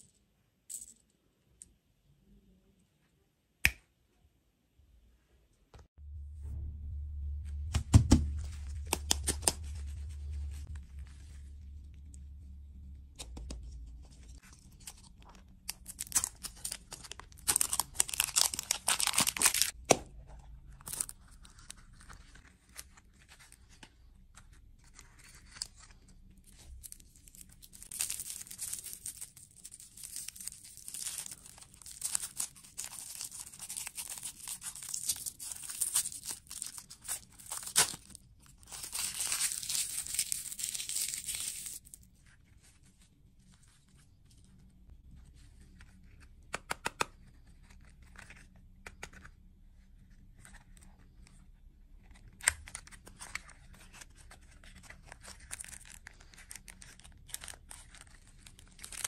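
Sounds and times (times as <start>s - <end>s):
plastic wrapper crinkling: 14.3s - 19.8s, 26.5s - 42.1s, 53.2s - 59.0s.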